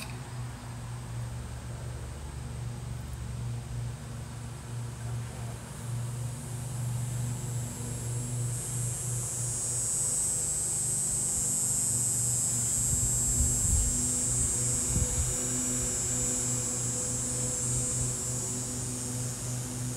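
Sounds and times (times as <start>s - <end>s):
steady low hum: 0.0s - 19.9s.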